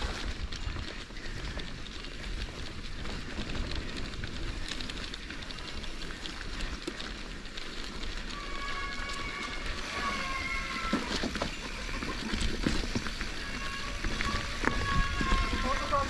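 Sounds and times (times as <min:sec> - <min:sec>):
bike rattles: 0:00.0 - 0:16.0
tyres crackling over dirt: 0:00.0 - 0:16.0
wind rumble on microphone: 0:00.0 - 0:16.0
high-pitched squeal: 0:08.3 - 0:16.0.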